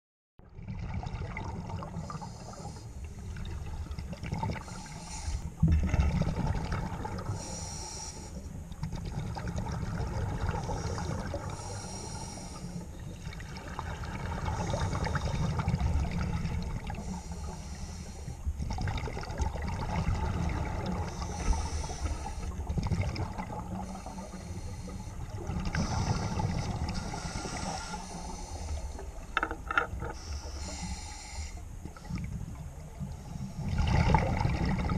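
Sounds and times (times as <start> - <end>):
exhaled bubbles gurgling: 0.4 - 34.9
regulator inhale hiss: 2.0 - 3.2, 4.6 - 5.6, 7.2 - 8.6, 10.6 - 13.1, 16.9 - 18.6, 20.9 - 22.8, 23.5 - 29.3, 30.1 - 32.3, 33.0 - 33.8.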